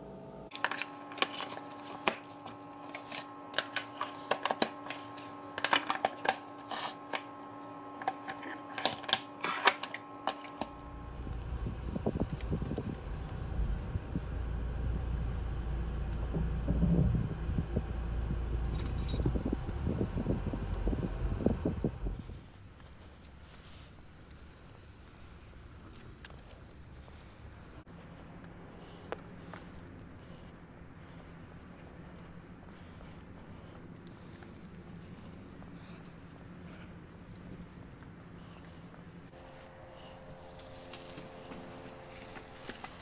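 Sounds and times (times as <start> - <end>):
faint steady hum: 0.0 - 43.0
car interior rumble: 10.8 - 22.6.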